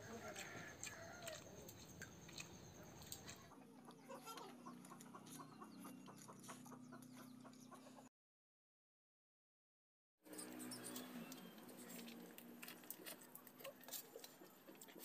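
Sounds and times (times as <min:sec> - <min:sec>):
eating rice from steel plate: 0:00.0 - 0:03.5, 0:10.4 - 0:15.0.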